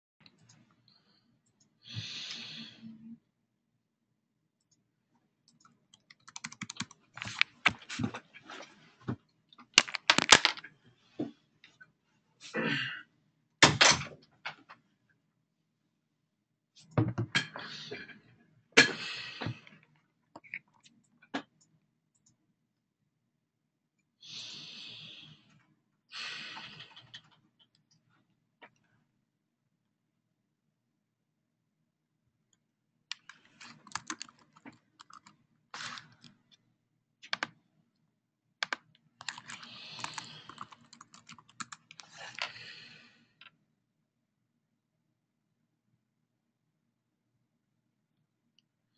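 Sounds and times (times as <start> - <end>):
typing on a computer keyboard: 5.5 - 7.8, 33.1 - 36.3, 37.2 - 37.5, 38.6 - 42.5.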